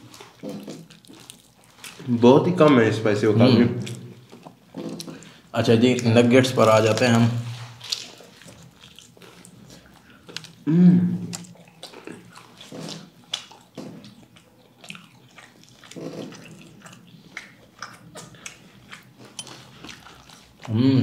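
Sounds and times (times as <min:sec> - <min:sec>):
wet mouth sounds: 0:00.0 - 0:02.1, 0:03.8 - 0:06.1, 0:06.9 - 0:21.0
biting and crunching food: 0:00.0 - 0:03.0, 0:03.7 - 0:20.8
person humming: 0:10.6 - 0:11.3, 0:20.7 - 0:21.0.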